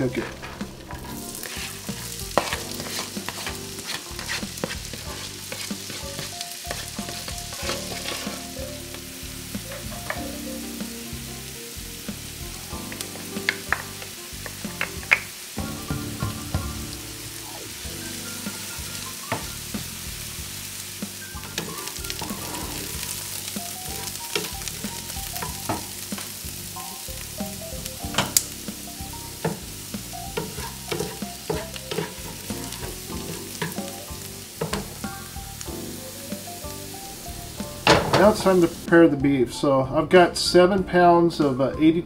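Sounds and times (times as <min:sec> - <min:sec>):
wooden spatula scraping pan: 0:00.0 - 0:08.6, 0:21.5 - 0:26.5, 0:29.4 - 0:34.0
vegetables sizzling in butter: 0:00.0 - 0:39.1.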